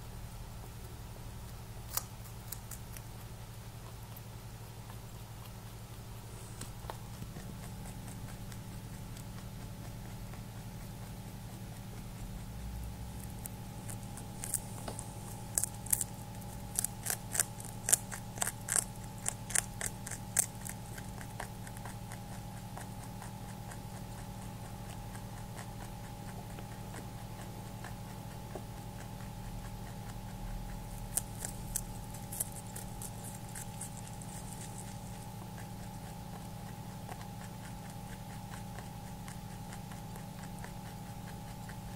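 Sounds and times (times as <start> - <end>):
rabbit crunching and chewing food: 0.0 - 41.9.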